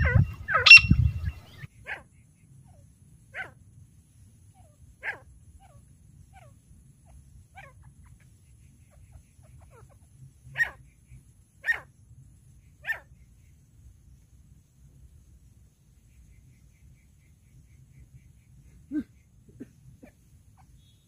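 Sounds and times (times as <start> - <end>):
francolin calling: 0.0 - 2.8.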